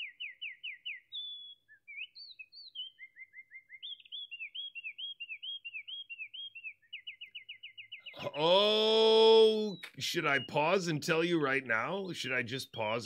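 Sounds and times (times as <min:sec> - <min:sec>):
wren singing trills: 0:00.0 - 0:13.0.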